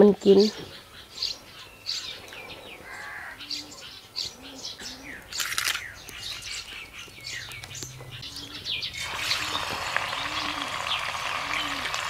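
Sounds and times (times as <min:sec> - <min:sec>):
birds chirping: 0:00.0 - 0:12.0
low bird call: 0:00.4 - 0:12.0
fish sizzling in hot oil: 0:09.0 - 0:12.0.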